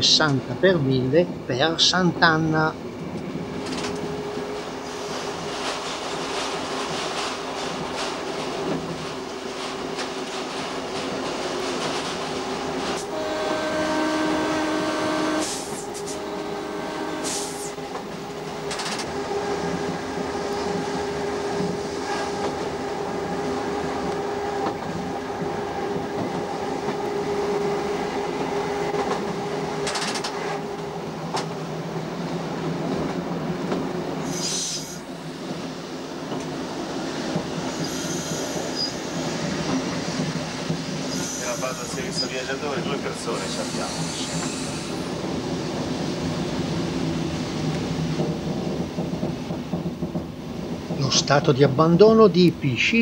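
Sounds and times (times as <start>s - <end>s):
railcar running on track: 0.0s - 53.0s
short high screeches: 37.7s - 39.0s, 41.1s - 42.3s, 43.3s - 45.0s.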